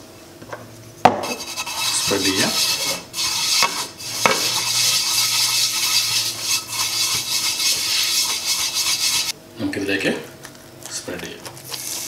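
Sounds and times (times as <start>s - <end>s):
brush scrubbing frying pan: 1.2s - 9.3s.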